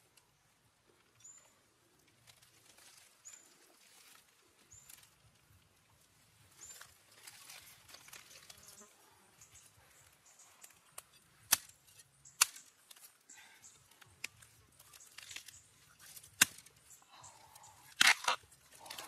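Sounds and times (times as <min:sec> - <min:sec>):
faint rustling and ticks: 0:00.0 - 0:11.3.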